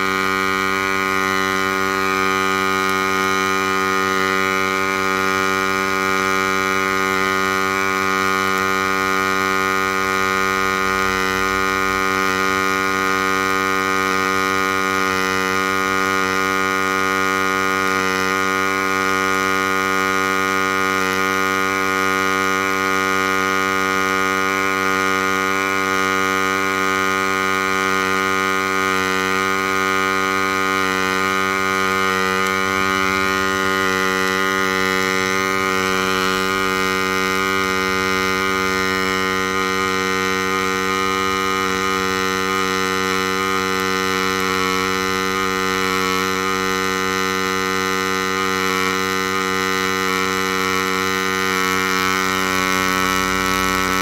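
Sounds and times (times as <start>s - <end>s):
welding arc humming buzz: 0.0s - 54.0s.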